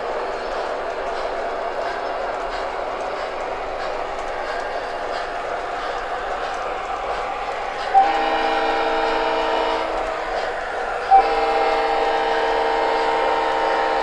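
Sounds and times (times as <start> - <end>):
model train running noise: 0.0 - 14.0
model locomotive horn chord blasts: 8.0 - 10.0, 11.1 - 14.0.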